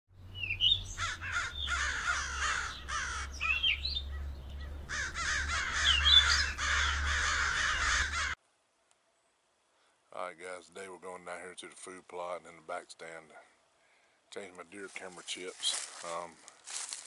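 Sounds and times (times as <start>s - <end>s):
crows cawing: 0.6s - 8.4s.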